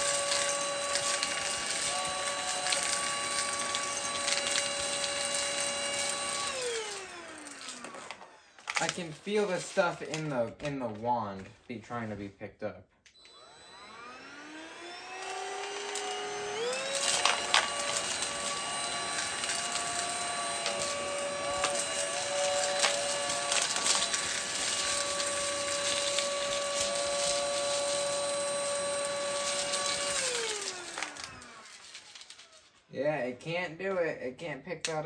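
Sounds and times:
vacuum motor whine: 0.0s - 9.2s, 13.1s - 32.5s
debris rattling in vacuum head: 16.8s - 32.6s.

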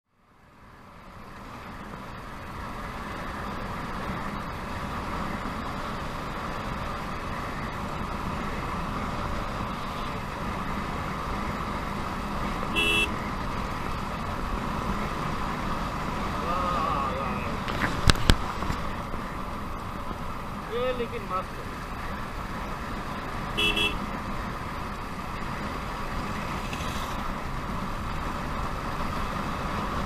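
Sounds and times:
motorcycle engine: 1.3s - 30.0s
vehicle horn beep: 12.7s - 13.2s, 23.6s - 24.0s.

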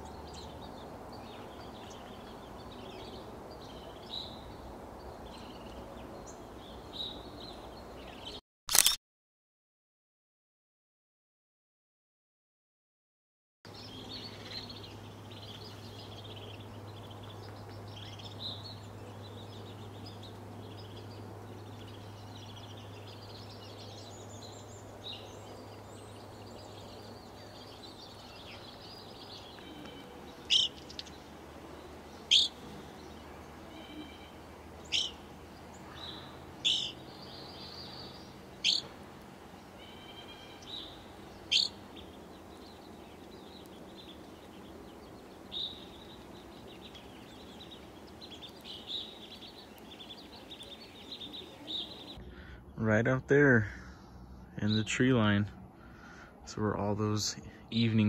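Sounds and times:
birds chattering high chirps: 0.0s - 8.9s, 13.7s - 58.0s
loud sharp bird calls: 13.7s - 58.0s.

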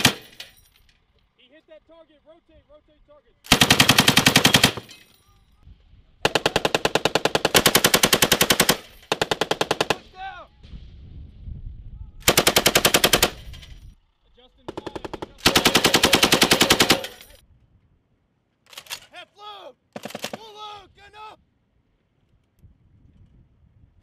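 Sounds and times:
machine gun automatic bursts: 0.0s - 0.4s, 3.5s - 5.0s, 6.2s - 10.2s, 12.2s - 13.8s, 14.6s - 17.4s, 20.0s - 20.5s.

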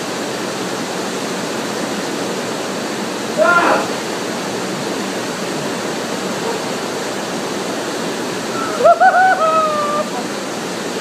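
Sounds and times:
waterfall rushing into pool: 0.0s - 11.0s
person's high wavering cry: 8.5s - 10.2s.

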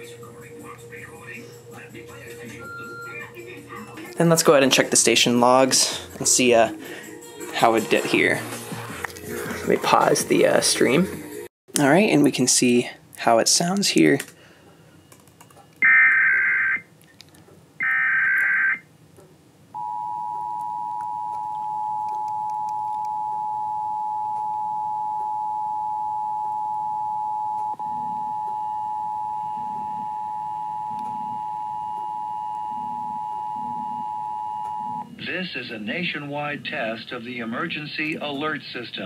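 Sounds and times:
steady two-tone alert signal: 2.6s - 4.0s, 15.8s - 16.8s.

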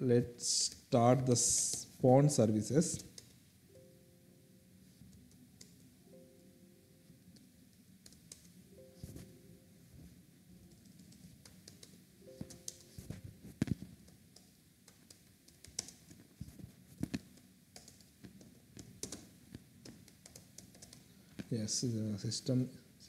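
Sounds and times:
computer keyboard keystrokes: 8.0s - 8.6s, 10.7s - 16.2s, 17.0s - 21.5s.

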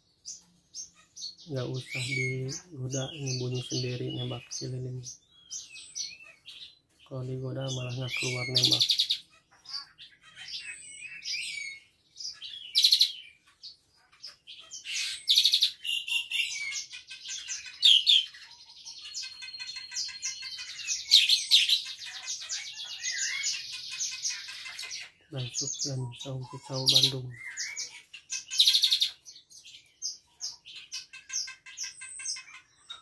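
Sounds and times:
starling chirps and whistles: 7.7s - 13.4s, 14.7s - 33.0s.

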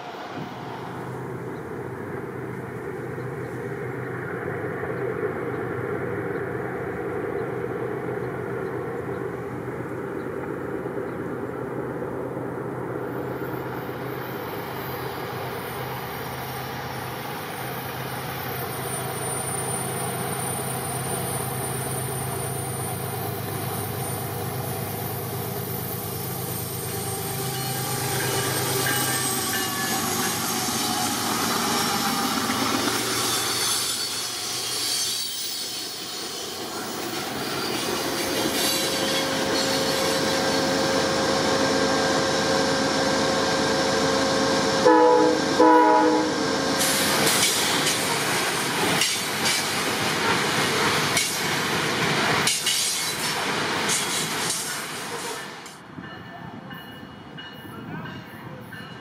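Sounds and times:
diesel locomotives droning: 0.0s - 59.0s
train wheels squealing on rails: 13.0s - 45.2s, 46.0s - 59.0s.

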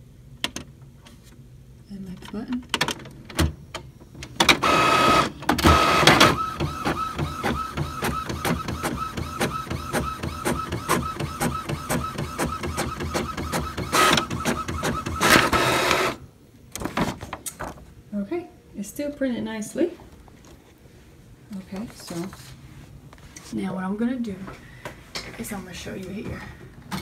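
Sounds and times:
inkjet printer mechanism: 4.4s - 16.2s.

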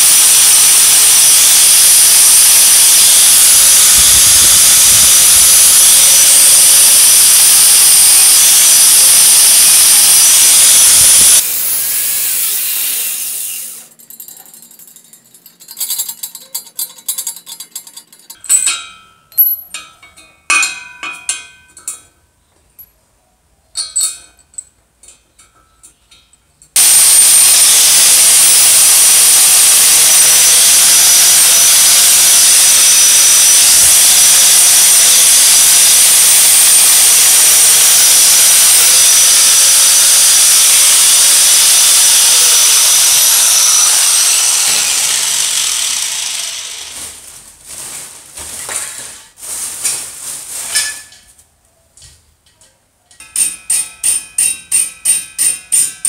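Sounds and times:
angle grinder wire brushing steel: 0.0s - 18.5s, 26.8s - 47.4s.

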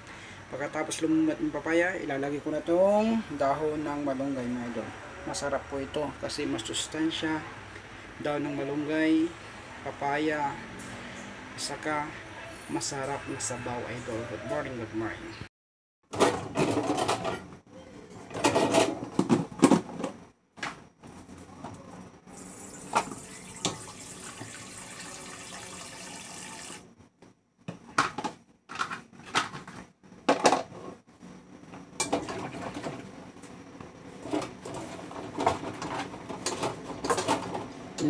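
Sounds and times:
colander and utensils clattering: 16.1s - 17.5s, 18.2s - 20.1s, 32.0s - 33.1s, 34.2s - 38.0s
tap running: 22.8s - 24.7s.

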